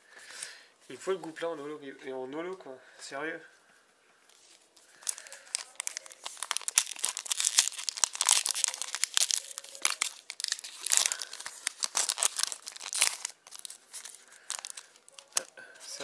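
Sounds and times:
foil wrapper crinkling and tearing: 0:04.4 - 0:16.0.

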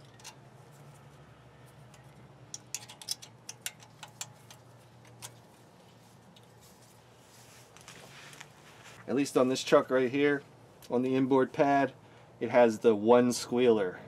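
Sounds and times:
light metallic clicks and taps: 0:01.8 - 0:05.4.

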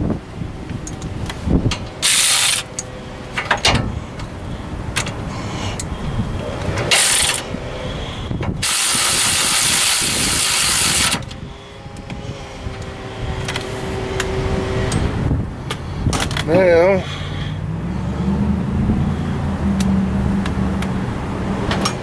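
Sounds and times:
ratchet wrench ratcheting: 0:00.8 - 0:03.6, 0:06.9 - 0:07.4, 0:08.6 - 0:11.4.

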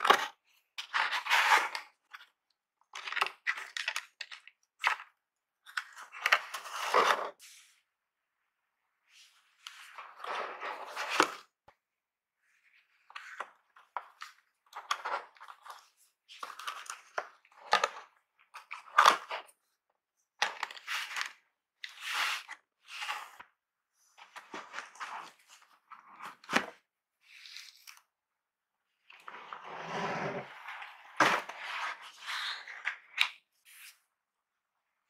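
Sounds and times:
cardboard and paper rustling: 0:24.1 - 0:26.8.

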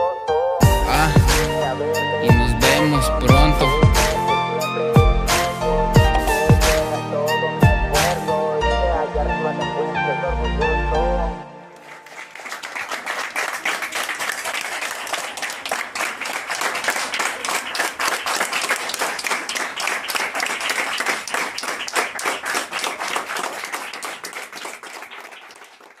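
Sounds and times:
people applauding: 0:02.3 - 0:04.2, 0:11.7 - 0:26.0.

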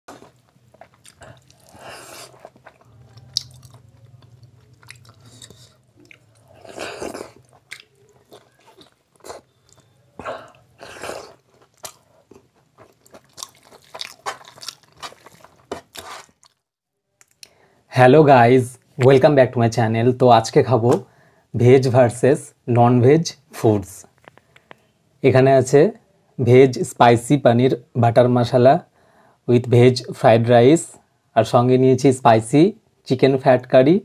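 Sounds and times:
wet chewing and smacking: 0:00.1 - 0:16.6.

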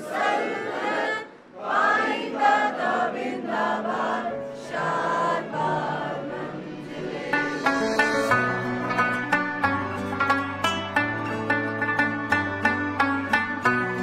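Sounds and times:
group of voices singing: 0:00.0 - 0:08.3
plucked string notes: 0:06.4 - 0:14.0.

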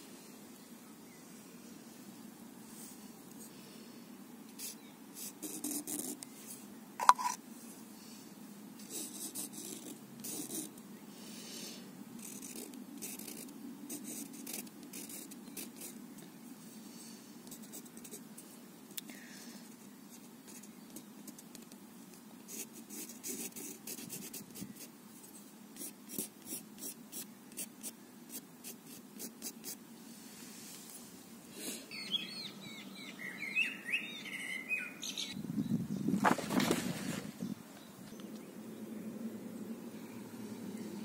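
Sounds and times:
pen scratching on paper: 0:04.6 - 0:06.2, 0:08.9 - 0:10.7, 0:12.2 - 0:16.0, 0:22.5 - 0:24.9, 0:25.8 - 0:29.8.

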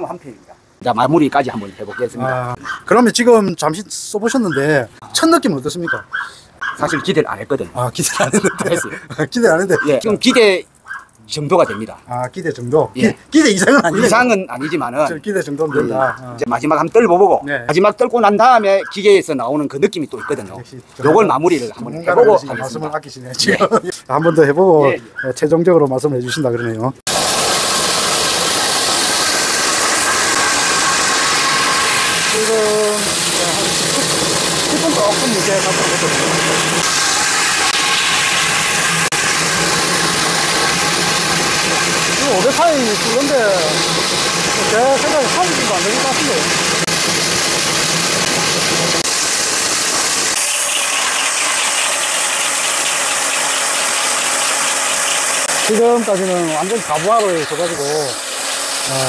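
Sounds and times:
core drill boring concrete: 0:27.1 - 0:59.0.

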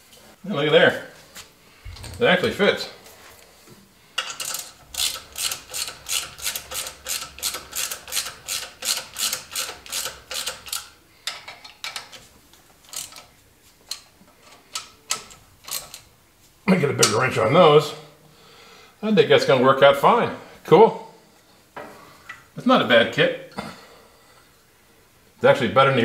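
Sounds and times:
ratchet wrench clicking: 0:04.2 - 0:12.2, 0:12.9 - 0:13.2.

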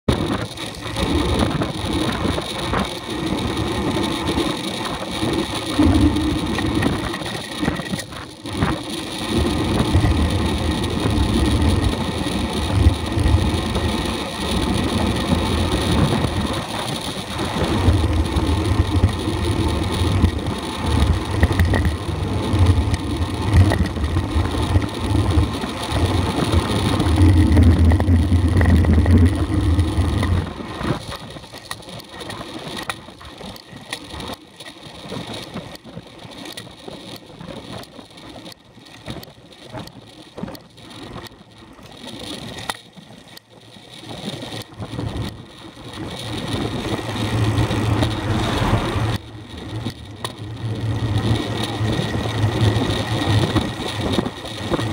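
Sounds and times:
tyre and road noise: 0:00.0 - 0:54.9
wind buffeting microphone: 0:00.1 - 0:31.2, 0:44.6 - 0:54.9.

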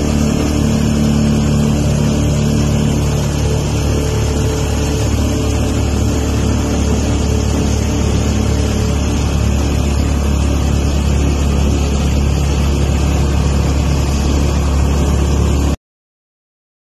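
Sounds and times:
vehicle engine and road noise: 0:00.0 - 0:15.8.

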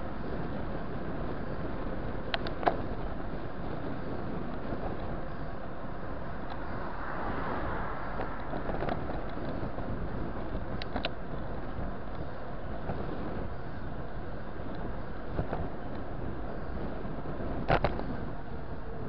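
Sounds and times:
car traffic: 0:00.0 - 0:19.0
road noise from bicycle: 0:00.0 - 0:19.0
wind rushing: 0:05.2 - 0:12.0.

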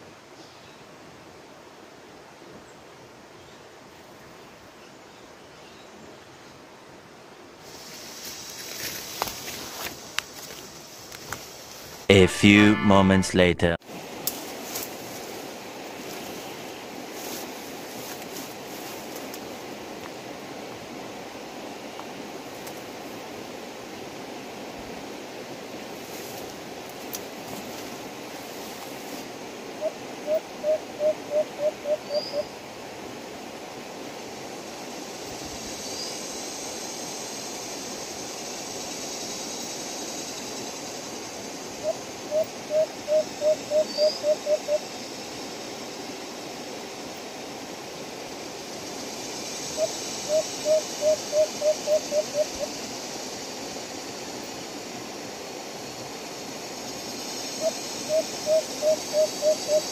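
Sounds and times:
steady background hiss: 0:00.0 - 0:59.9
dove hooting coos: 0:29.8 - 0:32.5, 0:41.8 - 0:44.8, 0:49.7 - 0:52.8, 0:57.6 - 0:59.9.

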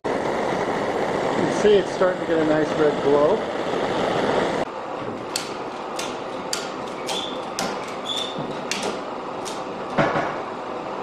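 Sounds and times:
propane torch hissing: 0:00.0 - 0:11.0
knock: 0:10.0 - 0:10.4.

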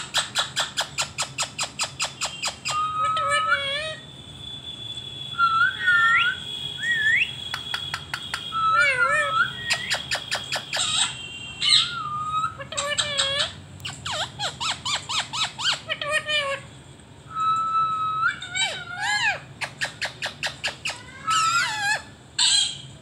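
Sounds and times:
parakeet whistled calls: 0:00.0 - 0:16.6, 0:17.3 - 0:23.0
parakeet quick sharp clicks: 0:07.4 - 0:08.5.

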